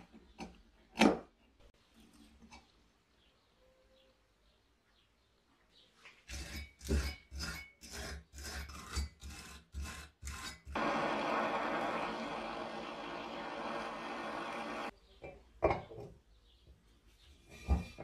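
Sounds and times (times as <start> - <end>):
gas torch flame hissing: 10.8 - 14.9.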